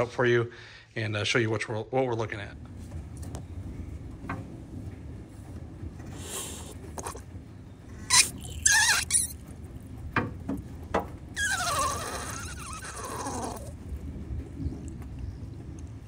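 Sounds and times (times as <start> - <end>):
hand pump squeaky strokes: 8.0 - 9.4, 11.4 - 13.7
hiss with falling squeal: 8.0 - 9.4, 11.4 - 13.7.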